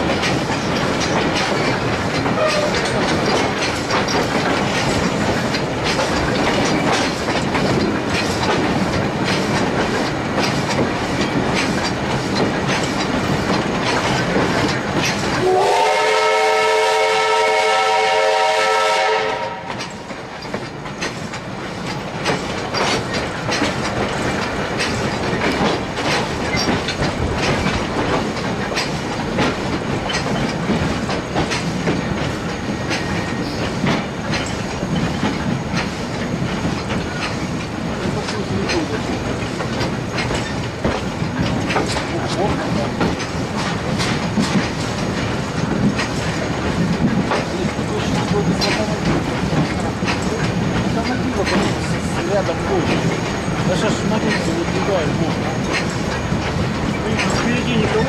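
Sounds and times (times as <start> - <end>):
steam locomotive clattering: 0.0 - 58.0
loud steam whistle: 15.4 - 19.8.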